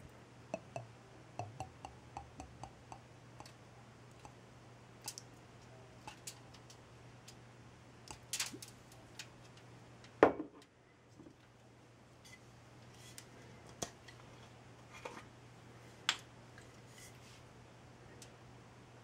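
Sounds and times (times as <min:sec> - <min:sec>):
glass bottle clicking: 0:00.6 - 0:03.0.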